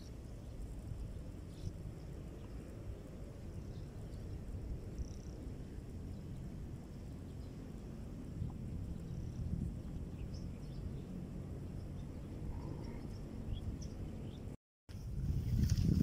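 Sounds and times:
wind rumble on microphone: 0:00.0 - 0:16.0
faint bird chirps: 0:11.7 - 0:14.6.

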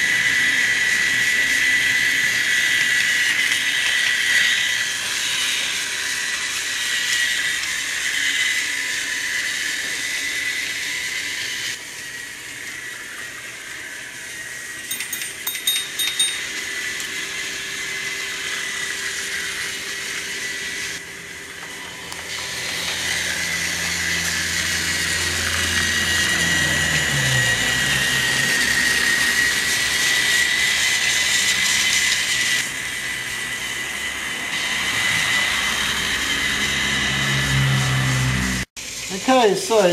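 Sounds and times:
toy train motor whine: 0:00.0 - 0:39.9
toy train wheels rattling: 0:14.8 - 0:17.2.

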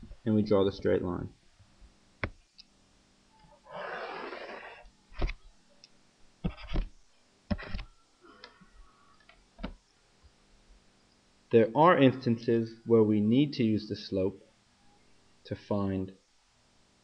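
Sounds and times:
pen scratchy drag on screen: 0:06.5 - 0:06.9.

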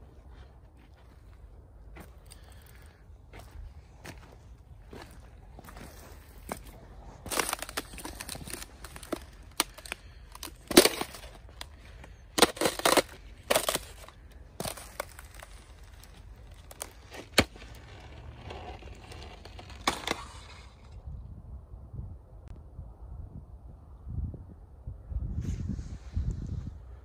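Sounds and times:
sharp cracks and crunches: 0:02.0 - 0:21.0.

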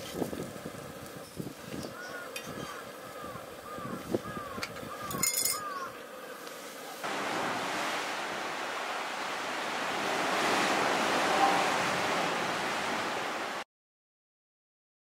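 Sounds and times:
sea surf washing: 0:06.5 - 0:13.6.

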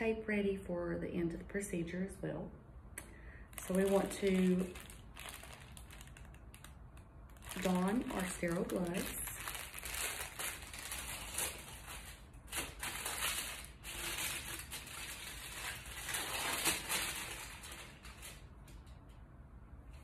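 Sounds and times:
paper wrapper rustling and crinkling: 0:03.5 - 0:19.0.

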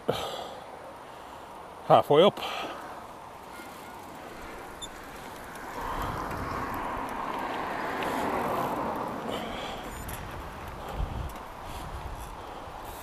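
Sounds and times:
steady background hiss: 0:00.0 - 0:05.9
car passing: 0:02.4 - 0:13.0.

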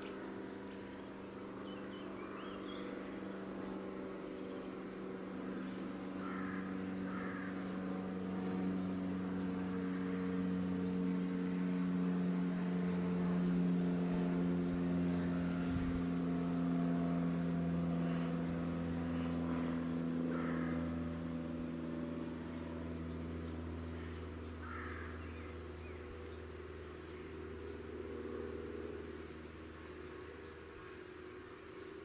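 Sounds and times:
faint bird calls: 0:00.0 - 0:08.0, 0:17.0 - 0:27.6
steady mechanical drone: 0:00.0 - 0:32.0.

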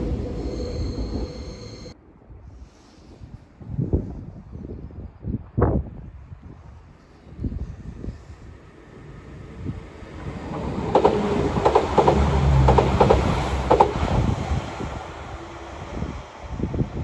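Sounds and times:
train passing rumble: 0:00.0 - 0:02.0, 0:06.9 - 0:17.0.

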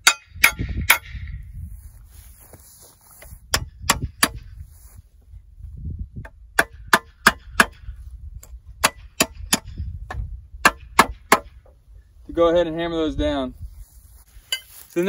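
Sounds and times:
metal clanks of stakes hammered: 0:00.0 - 0:01.3, 0:03.5 - 0:04.5, 0:06.6 - 0:07.9, 0:08.8 - 0:11.6.

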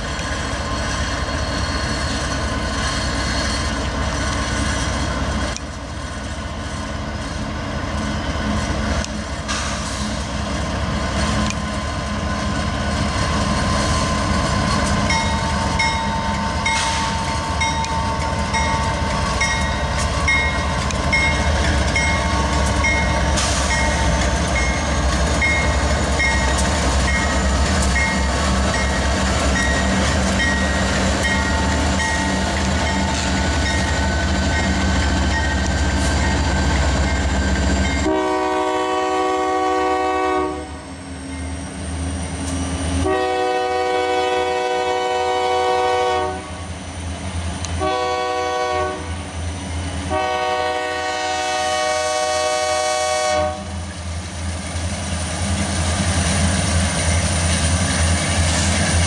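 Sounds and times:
locomotive engine rumble: 0:00.0 - 0:59.0
train wheels on rails: 0:00.0 - 0:59.0
train air horn: 0:38.0 - 0:40.8, 0:43.0 - 0:46.7, 0:47.8 - 0:49.2, 0:50.1 - 0:53.8.

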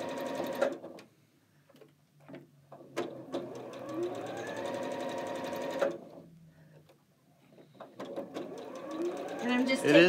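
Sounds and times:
sewing machine stitching: 0:00.0 - 0:00.9, 0:02.9 - 0:06.2, 0:07.9 - 0:10.0.

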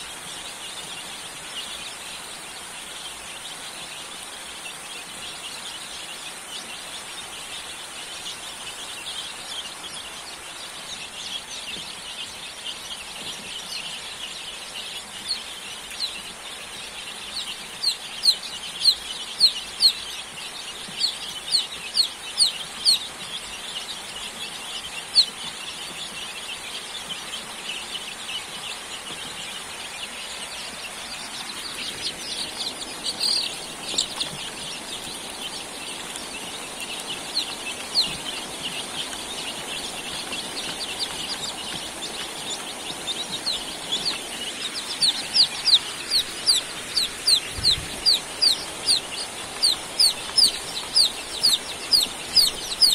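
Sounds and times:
chicks peeping: 0:00.0 - 0:52.9
loud downward-sliding chick peeps: 0:15.2 - 0:52.9.

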